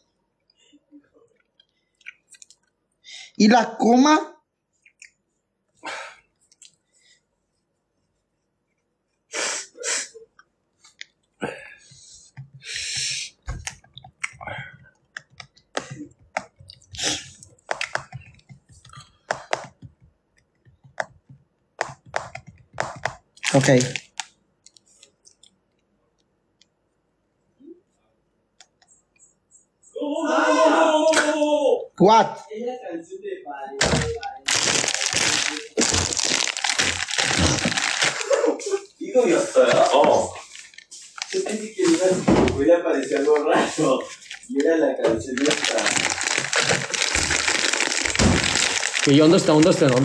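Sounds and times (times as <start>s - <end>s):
sharp breathy bursts: 11.8s - 13.4s.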